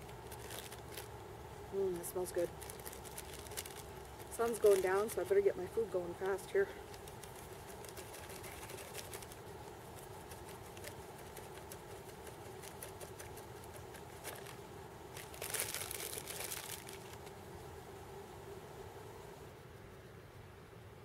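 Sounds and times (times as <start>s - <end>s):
packet crinkling and rustling: 0.0s - 1.2s, 1.9s - 17.4s.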